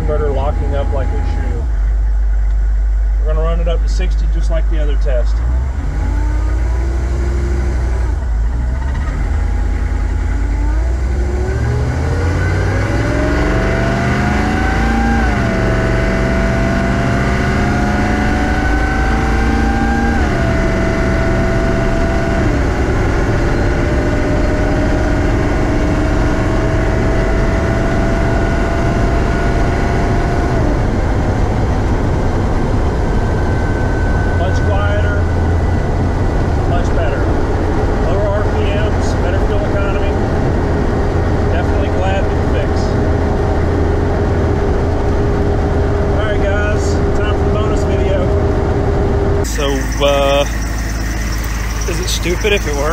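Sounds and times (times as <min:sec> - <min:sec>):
diesel engine accelerating: 0:00.0 - 0:52.9
road noise: 0:00.0 - 0:52.9.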